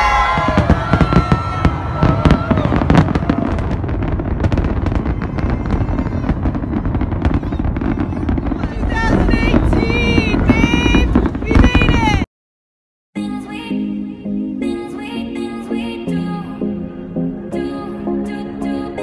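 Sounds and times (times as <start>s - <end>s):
crowd voices: 0.0s - 12.2s
fireworks cracking and banging: 0.0s - 12.3s.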